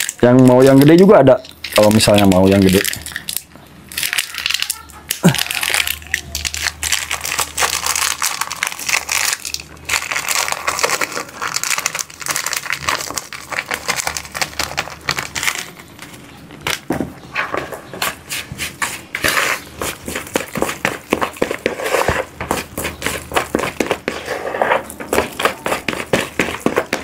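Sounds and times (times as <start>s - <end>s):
hands kneading bait mash: 0.0s - 27.0s.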